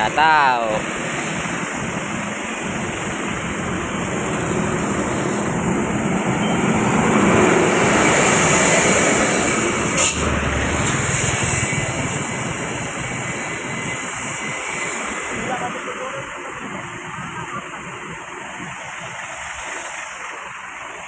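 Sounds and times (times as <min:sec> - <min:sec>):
engine rumble: 0:00.7 - 0:21.0
tyre hiss on wet road: 0:00.8 - 0:21.0.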